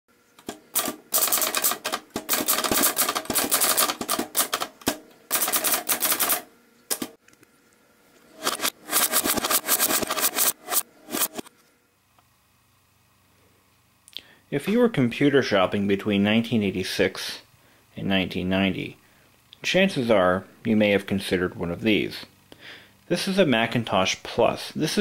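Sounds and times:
typewriter typing: 0:00.4 - 0:07.1, 0:08.4 - 0:11.5.

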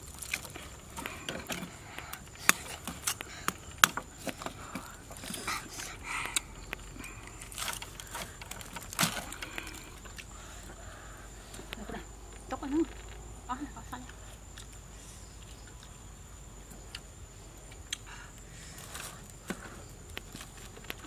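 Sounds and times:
meat and bone cracking: 0:00.0 - 0:10.4.

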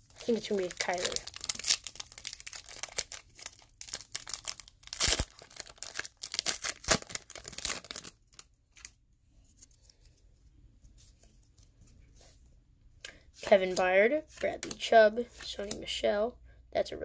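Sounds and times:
wrapper crinkling: 0:00.0 - 0:09.0
cards rustling: 0:00.1 - 0:08.9
foil pack tearing: 0:00.2 - 0:08.2.

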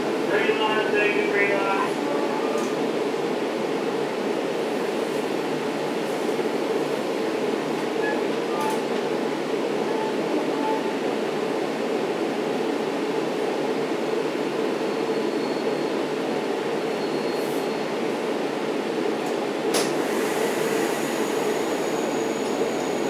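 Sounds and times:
train coach rumble: 0:00.0 - 0:23.0
high brake squeal: 0:15.1 - 0:15.9, 0:17.0 - 0:17.9, 0:20.2 - 0:23.0.

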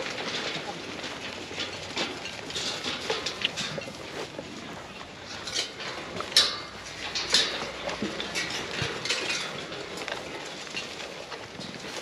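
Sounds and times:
metallic clinks and knocks: 0:05.3 - 0:12.0.

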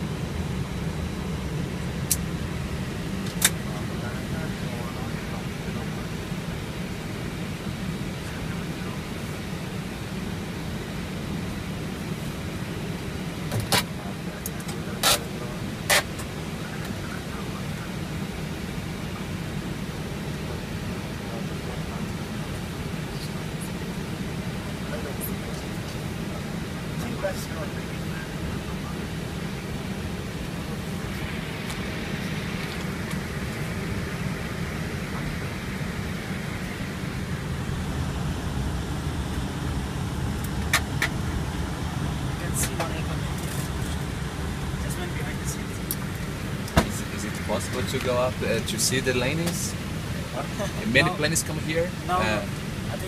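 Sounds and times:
jet engine rumble in cockpit: 0:00.0 - 0:53.0.

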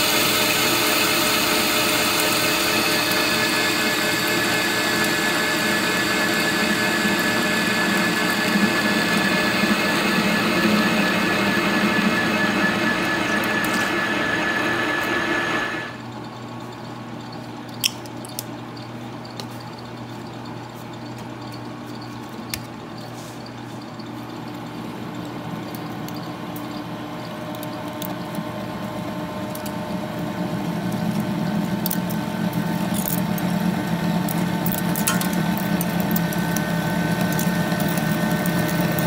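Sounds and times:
drill boring into steel: 0:00.0 - 0:16.0
lathe cutting steel: 0:00.0 - 0:16.0
machine hum: 0:00.0 - 0:17.3, 0:23.7 - 0:39.0.

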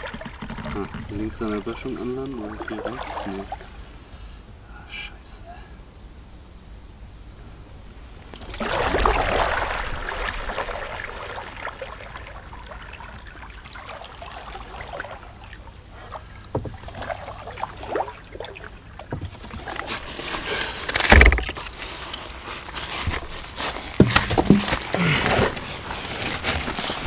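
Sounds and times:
water splashing around kayak: 0:00.0 - 0:03.9, 0:08.4 - 0:27.0
heavy thump: 0:16.5 - 0:16.8
knocks: 0:16.5 - 0:16.9, 0:24.0 - 0:24.9.

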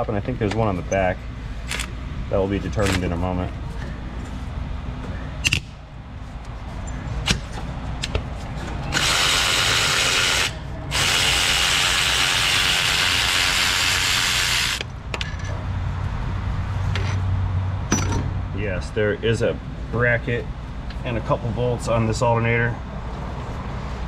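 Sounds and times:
cordless electric ratchet running: 0:08.9 - 0:14.9.

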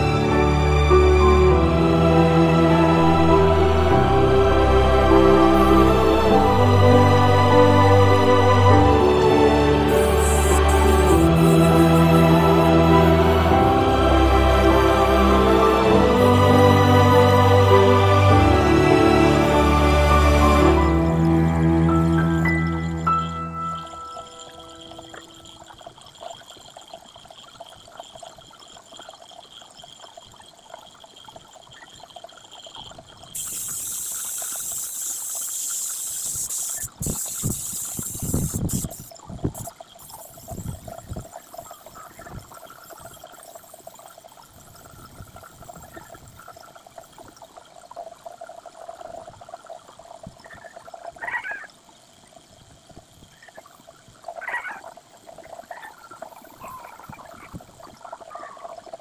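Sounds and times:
spray gun hissing: 0:09.9 - 0:13.5, 0:33.4 - 0:40.8.

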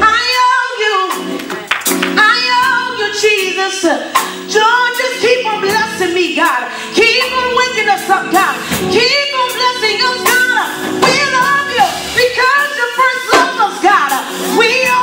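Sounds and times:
woman singing into microphone: 0:00.0 - 0:15.0.

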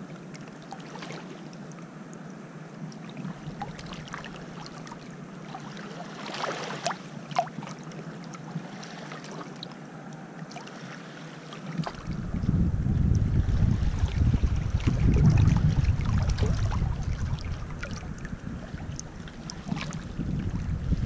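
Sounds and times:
small waves lapping on pebbles: 0:00.2 - 0:01.6, 0:03.0 - 0:09.9, 0:10.5 - 0:12.2
water splashes over stones: 0:03.0 - 0:08.0, 0:13.8 - 0:20.2
low rumble: 0:11.9 - 0:21.0.

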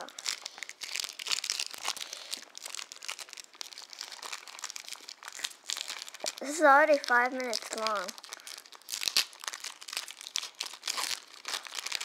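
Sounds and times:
foil wrapper crinkling: 0:00.0 - 0:12.0.

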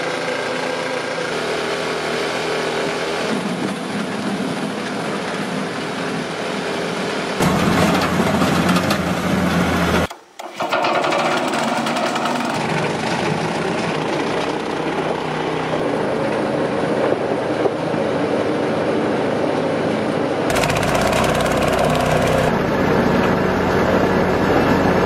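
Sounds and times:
small petrol engine running: 0:00.0 - 0:04.8, 0:07.4 - 0:15.7, 0:20.5 - 0:25.0
conveyor belt clattering wood: 0:20.5 - 0:22.5.

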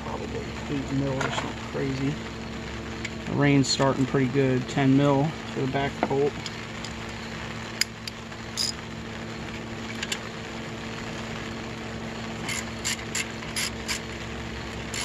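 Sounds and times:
steady low hum: 0:00.0 - 0:15.0
socket ratchet clicking: 0:12.5 - 0:14.0.

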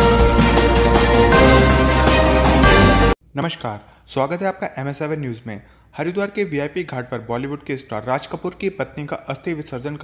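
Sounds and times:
news intro theme music: 0:00.0 - 0:03.2.

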